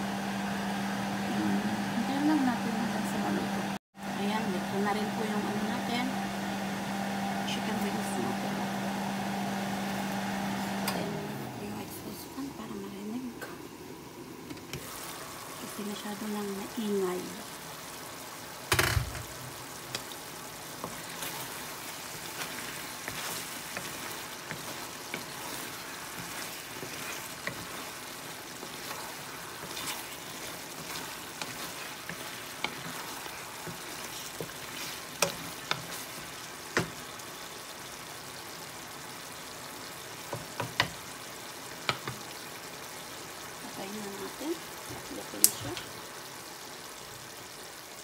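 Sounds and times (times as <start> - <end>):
chicken wings sizzling in a pan: 0.0 - 48.0
wooden spatula stirring: 19.8 - 37.5.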